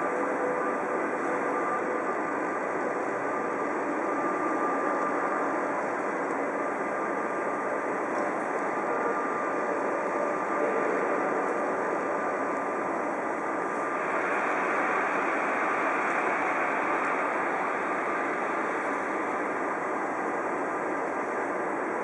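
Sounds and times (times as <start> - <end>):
faint constant tone: 0.0 - 22.0
steam hissing: 8.8 - 21.8.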